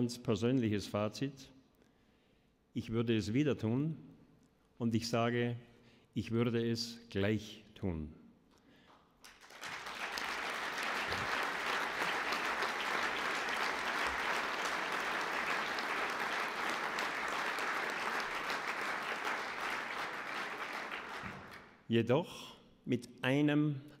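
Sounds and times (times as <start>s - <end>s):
audience applauding: 9.2s - 21.8s.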